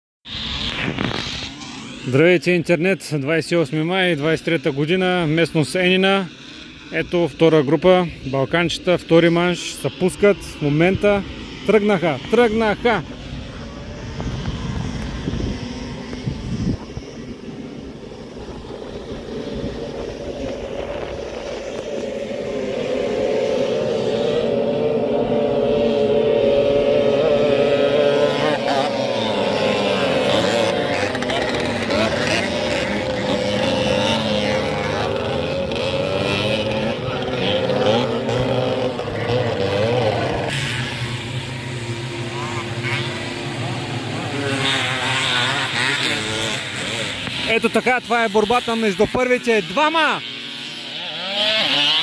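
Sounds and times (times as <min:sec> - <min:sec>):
motocross motorcycle engines droning: 0:00.3 - 0:52.0.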